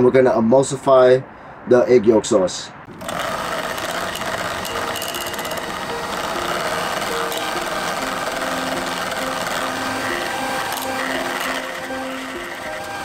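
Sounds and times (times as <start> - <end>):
electric hand mixer whisking: 2.9 - 13.0.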